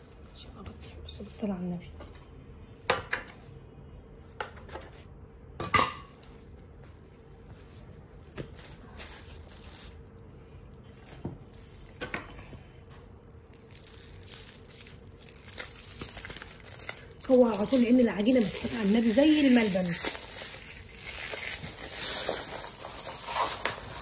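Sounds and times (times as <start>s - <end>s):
plastic wrap crinkling: 7.6s - 24.0s.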